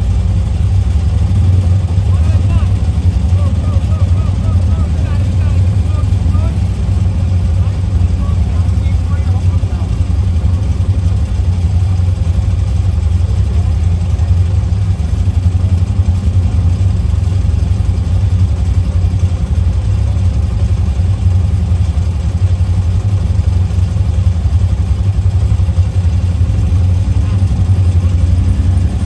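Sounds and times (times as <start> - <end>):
atv engine running: 0.0 - 29.0.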